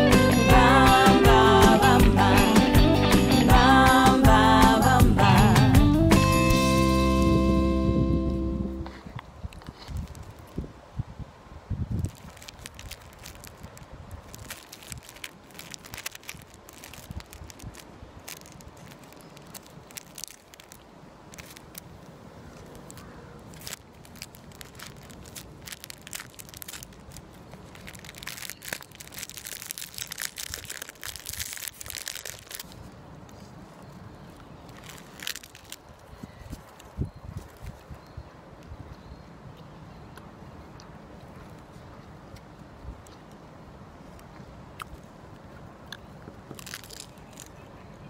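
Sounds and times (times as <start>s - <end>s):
plastic wrapper crinkling: 8.9s - 10.7s, 11.9s - 38.0s, 46.4s - 47.7s.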